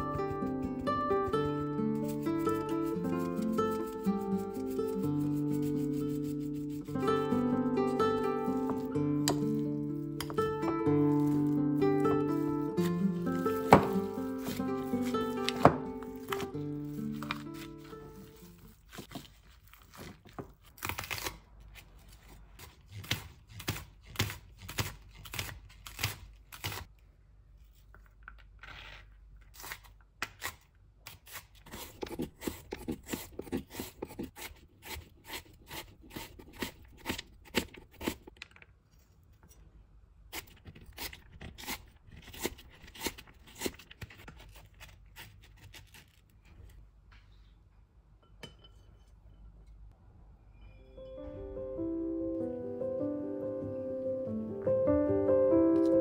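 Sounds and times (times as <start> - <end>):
knife chopping on plastic board: 13.6 - 14.6, 15.4 - 16.5.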